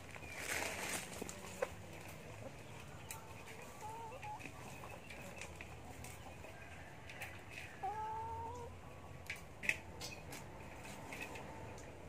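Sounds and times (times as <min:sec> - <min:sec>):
cat meowing: 0:07.8 - 0:08.7.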